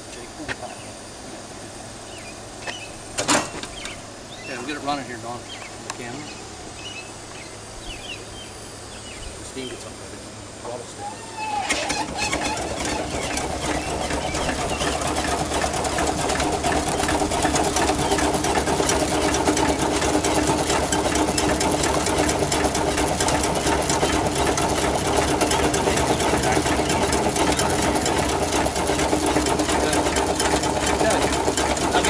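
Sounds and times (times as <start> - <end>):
steam engine chuffing with hiss: 11.4 - 32.0.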